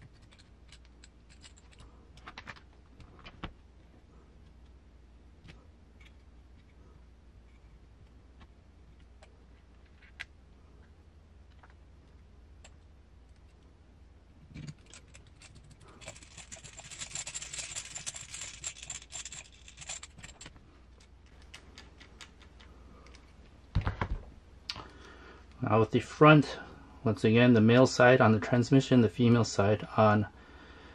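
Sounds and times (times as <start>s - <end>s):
light clicks of small parts: 14.6s - 23.6s.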